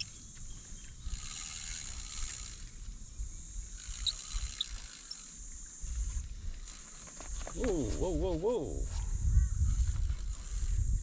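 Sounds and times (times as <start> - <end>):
spinning reel winding: 1.0 - 2.9, 3.6 - 5.4, 6.6 - 7.2, 9.6 - 11.0
wind rumble on microphone: 7.5 - 11.0.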